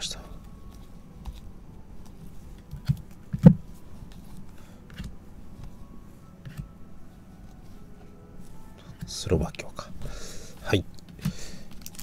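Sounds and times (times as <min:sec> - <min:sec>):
cards clicking and rustling: 0:10.9 - 0:12.0.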